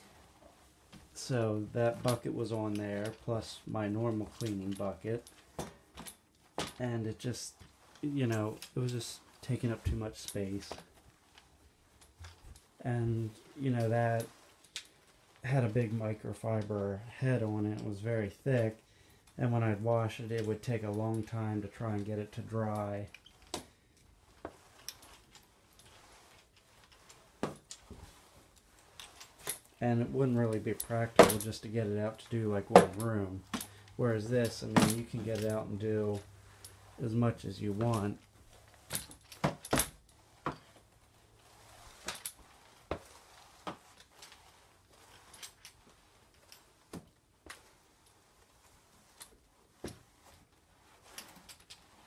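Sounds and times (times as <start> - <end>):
faint hiss: 0.0 - 52.0
mop pad swishing on floor: 21.8 - 52.0.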